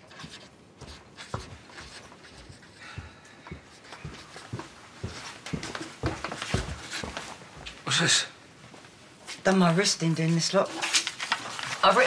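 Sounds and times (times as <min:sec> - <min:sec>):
pen scratching on paper: 0:00.0 - 0:02.8.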